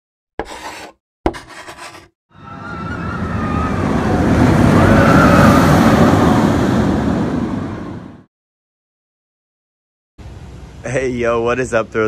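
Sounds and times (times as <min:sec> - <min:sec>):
rushing rumble with whistle: 0:02.3 - 0:08.3.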